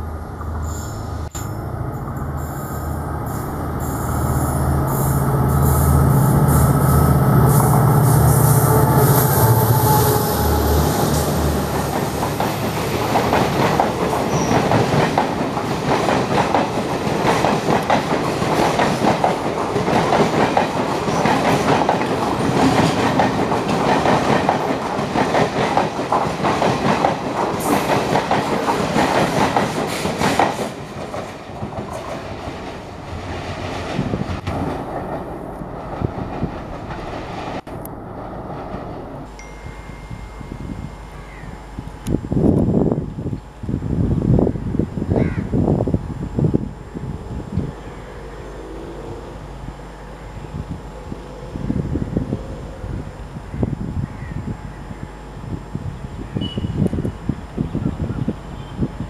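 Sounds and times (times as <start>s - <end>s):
diesel locomotive engine drone: 0.0s - 59.0s
train wheels clickety-clack: 11.7s - 37.6s.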